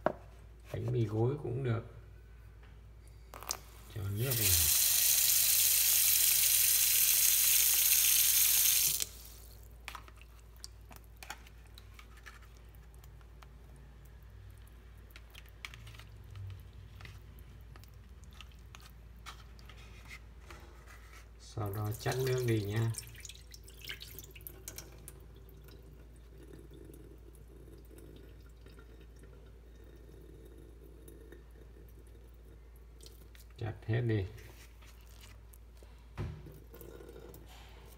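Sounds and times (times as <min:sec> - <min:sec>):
tap water running: 0:03.4 - 0:09.7, 0:21.6 - 0:33.3
faint water trickle: 0:08.9 - 0:18.9, 0:21.4 - 0:37.9
soaked bread squishing: 0:09.3 - 0:26.4, 0:34.4 - 0:37.9.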